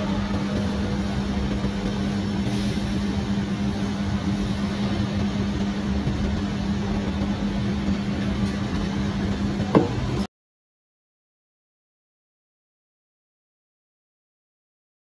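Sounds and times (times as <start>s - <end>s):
steady low hum: 0.0s - 10.3s
drink can set down on table: 9.8s - 10.0s.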